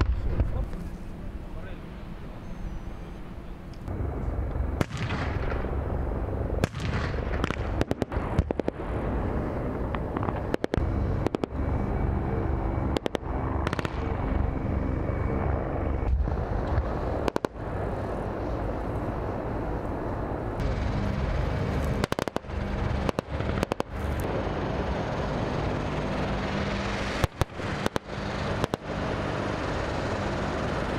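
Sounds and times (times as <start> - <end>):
gunfire and blasts: 0.0 - 0.6, 4.8 - 5.8, 6.6 - 9.1, 9.7 - 11.6, 12.9 - 14.1, 16.8 - 17.6, 21.9 - 24.2, 27.1 - 29.0
low engine rumble: 0.0 - 30.9.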